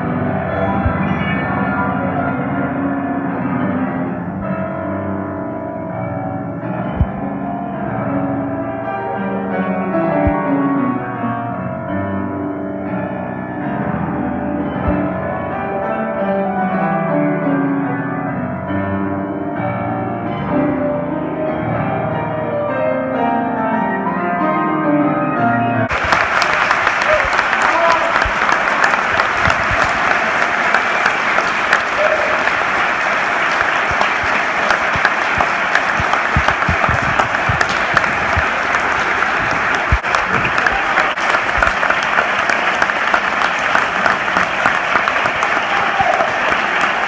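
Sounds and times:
grand piano playing: 0.0s - 47.0s
audience applauding: 25.9s - 47.0s.

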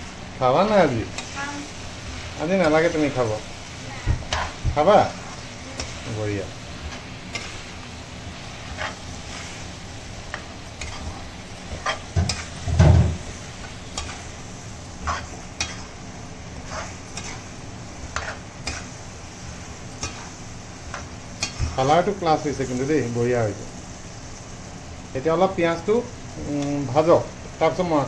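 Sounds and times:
meat sizzling in oil: 0.0s - 28.0s
metal spatula scraping wok: 4.1s - 16.0s, 16.6s - 19.1s.

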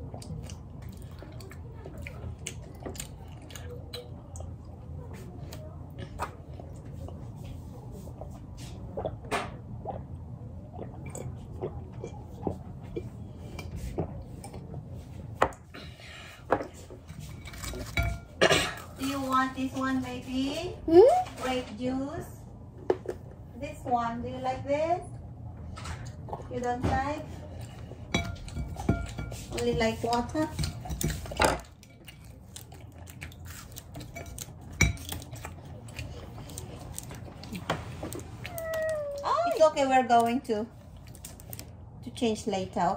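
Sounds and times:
child gulping a drink: 8.2s - 13.2s.

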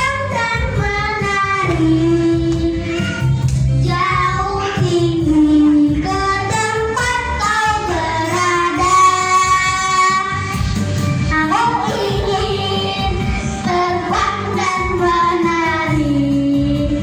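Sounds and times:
backing track over loudspeakers: 0.0s - 17.0s
child singing into a microphone: 0.0s - 17.0s.

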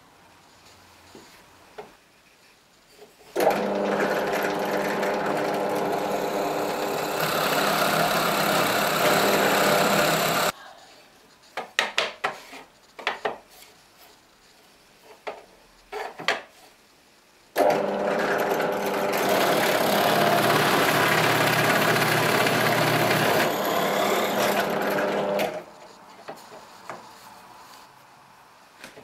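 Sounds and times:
drill press boring wood: 3.4s - 10.5s, 17.6s - 25.7s.

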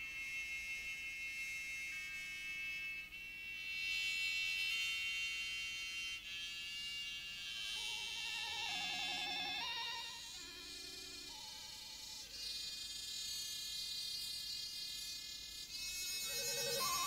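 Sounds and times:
buzzing wavering electronic tones: 0.0s - 17.0s
violin: 7.6s - 12.1s.

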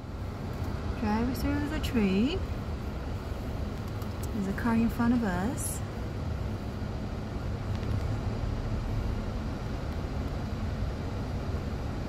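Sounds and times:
car rumble inside cabin: 0.0s - 12.0s.

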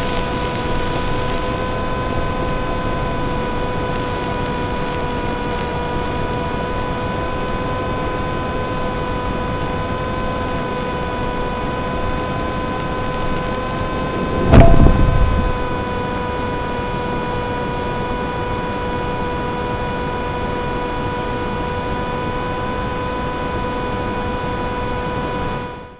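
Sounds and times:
electrical hum over hiss: 0.0s - 25.9s
model plane landing thump: 13.7s - 15.8s.

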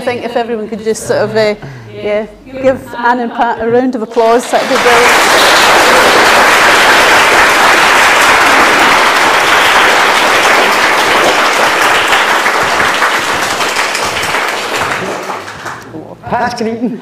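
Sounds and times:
audience applauding: 4.2s - 15.9s.

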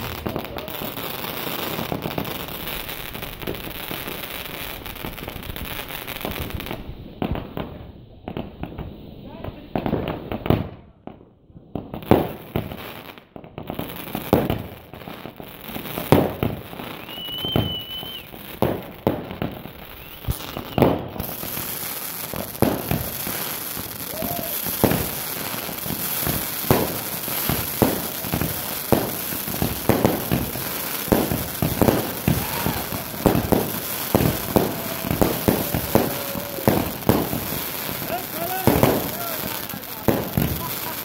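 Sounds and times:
crackling hiss: 0.0s - 9.4s, 13.8s - 41.0s
fireworks bangs and pops: 0.0s - 41.0s
firework whistle: 16.7s - 18.8s, 19.5s - 41.0s.

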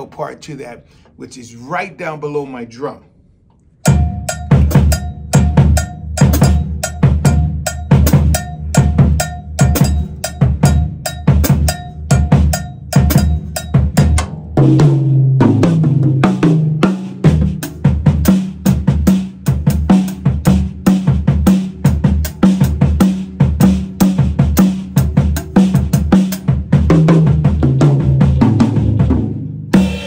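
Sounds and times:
ringing lower drum tones: 3.8s - 15.7s.

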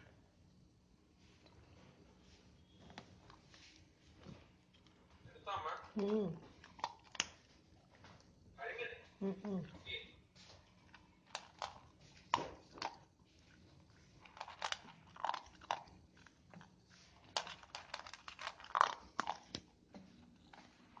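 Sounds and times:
dog crunching dry kibble: 4.6s - 8.4s, 9.8s - 21.0s.

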